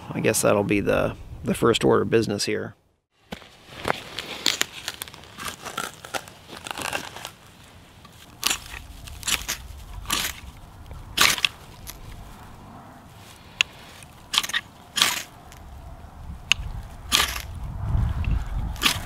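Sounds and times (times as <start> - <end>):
dry grass rustling and crackling: 3.1 - 19.0
knife scraping ferrocerium rod: 8.3 - 10.6, 13.6 - 15.7, 18.8 - 19.0.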